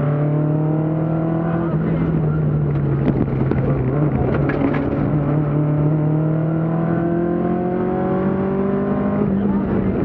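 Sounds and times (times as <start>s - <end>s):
car engine running hard: 0.0s - 10.0s.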